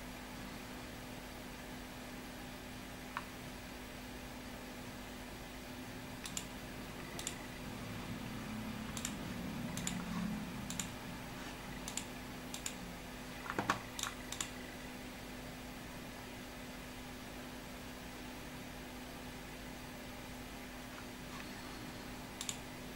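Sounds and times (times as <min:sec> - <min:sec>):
low steady hum: 0:00.0 - 0:22.9
computer mouse clicks: 0:06.2 - 0:07.5, 0:08.8 - 0:11.0, 0:11.7 - 0:12.8, 0:13.4 - 0:14.6, 0:22.4 - 0:22.7.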